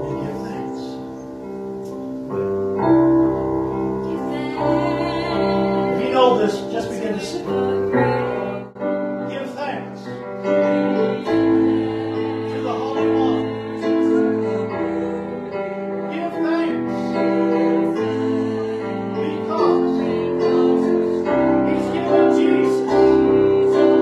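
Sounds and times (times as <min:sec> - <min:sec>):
keyboard playing slow chords: 0:00.0 - 0:24.0
person's voice: 0:06.0 - 0:07.7.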